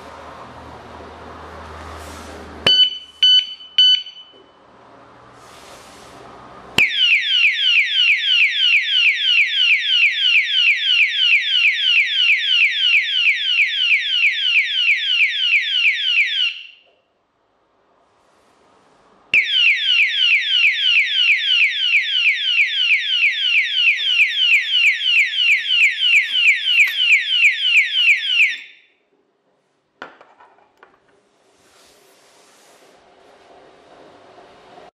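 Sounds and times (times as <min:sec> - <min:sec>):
siren of rapid falling sweeps: 0:19.4 - 0:28.8.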